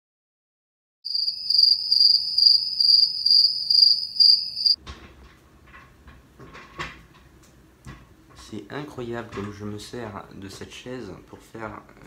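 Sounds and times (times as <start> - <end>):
cricket chirping: 1.1 - 4.8.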